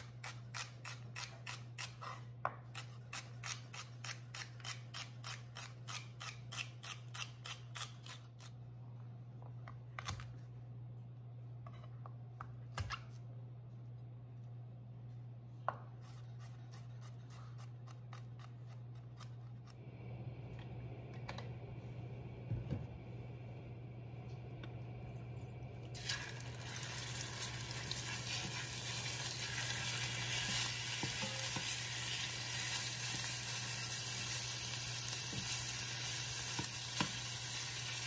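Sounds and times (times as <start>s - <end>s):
low hum: 19.5s - 27.9s.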